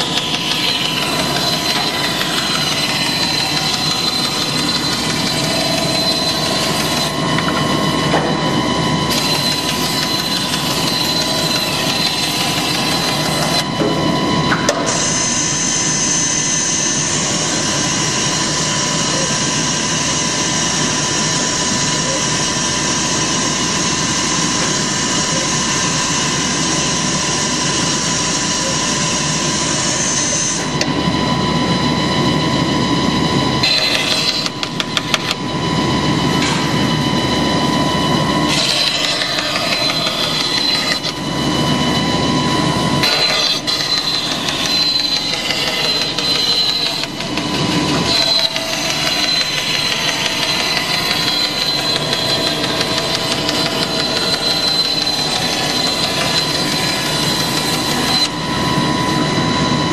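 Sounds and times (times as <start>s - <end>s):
jigsaw blade sawing chipboard: 0.0s - 7.2s, 9.1s - 13.6s, 33.6s - 35.3s, 38.5s - 41.2s, 43.0s - 58.4s
machine running with high whine: 0.0s - 59.9s.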